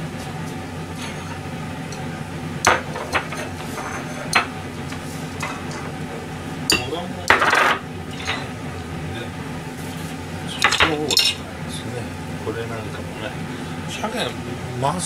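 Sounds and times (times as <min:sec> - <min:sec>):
crockery clinking: 0:02.7 - 0:04.6, 0:05.4 - 0:06.0, 0:06.7 - 0:08.6, 0:10.6 - 0:11.4.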